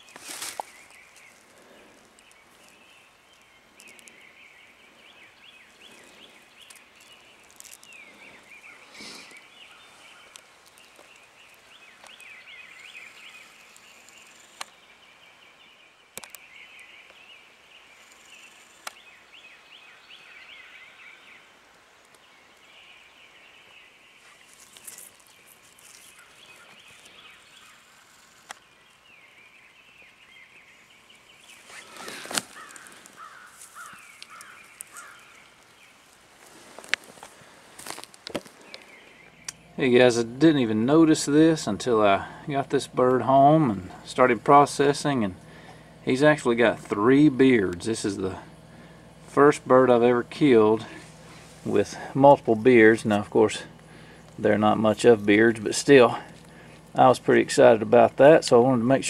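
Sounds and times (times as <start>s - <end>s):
small birds chirping: 0.0s - 59.0s
sharp clicks: 16.2s - 16.9s
brief rustles: 31.5s - 35.2s.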